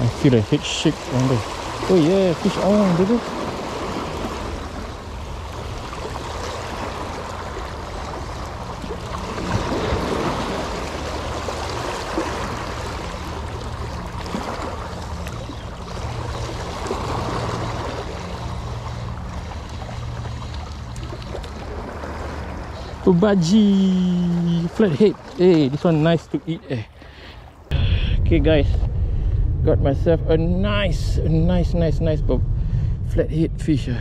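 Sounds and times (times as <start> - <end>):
low steady hum: 0.0 - 34.0
wind on microphone: 27.7 - 34.0.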